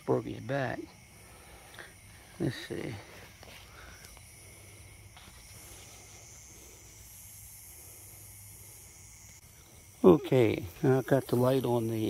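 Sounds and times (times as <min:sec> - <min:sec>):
night insects chirring: 0:00.0 - 0:12.0
faint ticks: 0:03.4 - 0:04.3.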